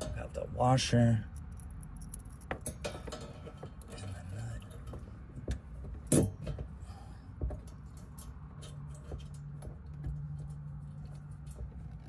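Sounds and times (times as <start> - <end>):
small metal hardware clicking: 1.3 - 5.0.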